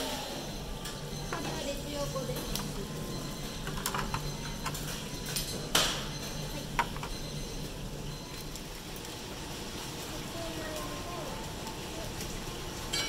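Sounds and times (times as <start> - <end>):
steady low hum: 0.0 - 13.0
tableware clatter: 3.4 - 7.4
tableware clinking: 3.4 - 7.5.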